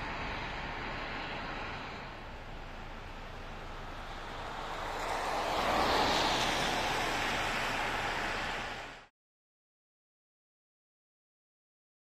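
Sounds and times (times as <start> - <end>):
heavy rain falling: 2.5 - 9.0.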